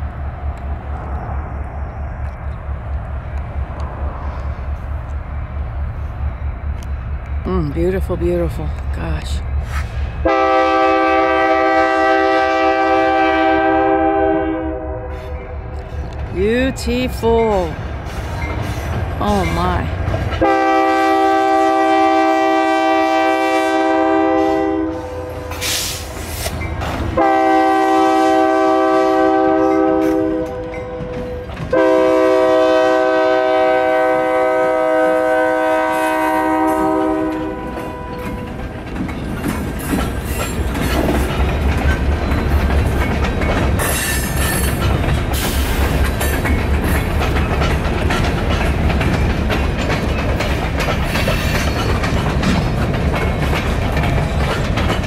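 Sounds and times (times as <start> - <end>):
freight cars rumbling past: 0.0 - 14.0
locomotive air horn blasts: 10.2 - 15.4, 20.4 - 25.9, 27.2 - 31.0, 31.7 - 38.1
wheels clacking over rail joints: 15.2 - 22.8, 25.4 - 34.4, 36.5 - 55.0.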